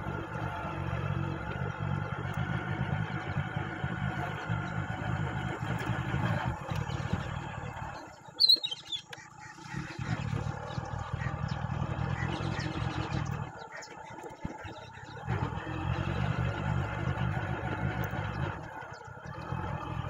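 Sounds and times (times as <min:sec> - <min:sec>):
motorcycle engine running: 0:00.0 - 0:20.0
sudden loud high chirp: 0:08.4 - 0:09.1.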